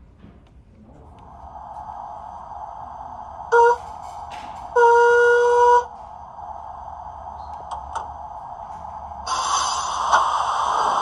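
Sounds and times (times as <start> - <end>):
quiet steam hiss: 1.1 - 11.0
steam whistle blast: 3.5 - 3.9, 4.8 - 5.9
loud steam hiss: 9.2 - 11.0.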